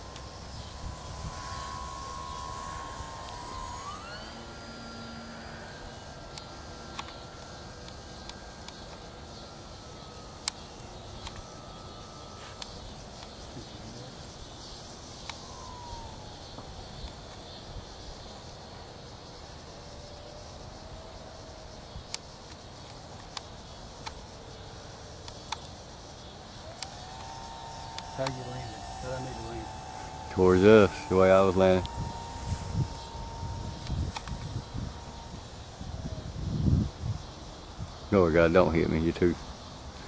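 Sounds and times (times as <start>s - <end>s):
wind rumbling on microphone: 0.0s - 4.6s, 26.7s - 38.1s
model airplane motor whining: 0.0s - 40.0s
sharp clicks: 5.2s - 9.1s, 10.4s - 13.4s, 22.1s - 24.2s, 26.7s - 35.4s.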